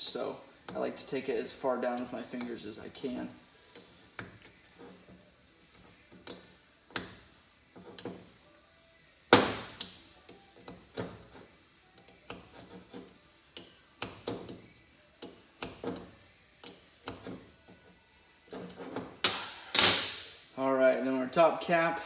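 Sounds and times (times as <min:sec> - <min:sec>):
loud metal clank: 0:19.3 - 0:20.4.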